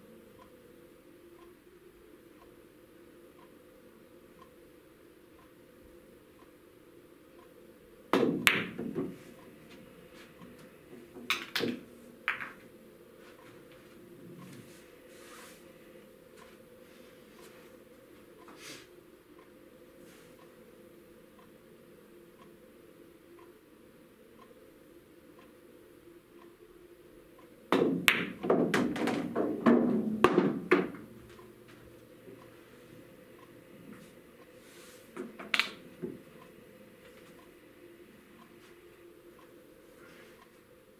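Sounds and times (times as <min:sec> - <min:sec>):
cue tip striking ball: 0:08.2 - 0:09.2, 0:11.2 - 0:12.6, 0:27.7 - 0:31.1
pool balls clacking: 0:08.2 - 0:09.3, 0:10.5 - 0:12.7, 0:27.7 - 0:31.8, 0:35.1 - 0:36.3
balls rolling on cloth: 0:27.7 - 0:31.8.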